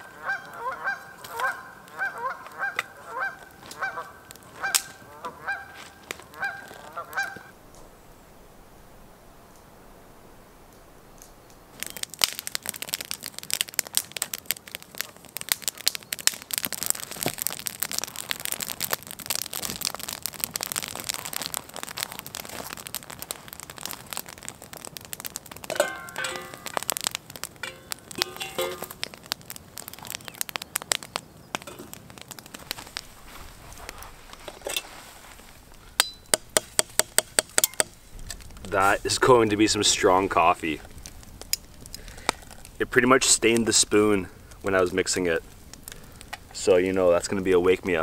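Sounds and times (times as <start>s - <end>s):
goose honks: 0.0s - 7.5s
campfire crackling and popping: 0.0s - 48.0s.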